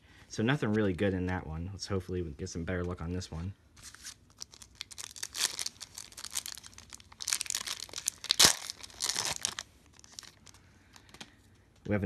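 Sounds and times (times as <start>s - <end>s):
wrapper being torn open: 3.8s - 10.6s
foil wrapper crinkling: 3.8s - 11.2s.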